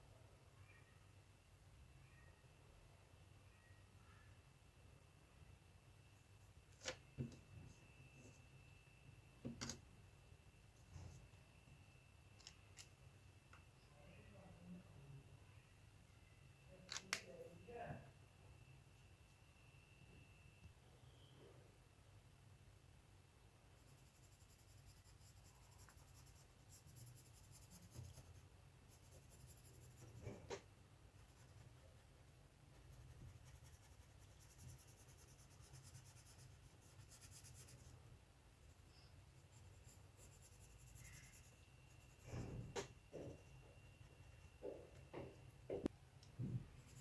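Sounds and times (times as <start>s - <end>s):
pencil scratching on paper: 23.8s - 30.6s, 31.2s - 37.9s, 38.7s - 42.6s.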